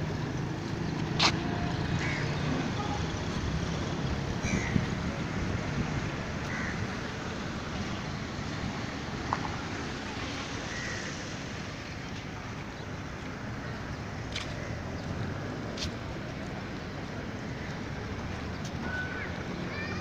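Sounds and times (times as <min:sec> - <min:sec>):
wind on microphone: 0:04.4 - 0:07.3.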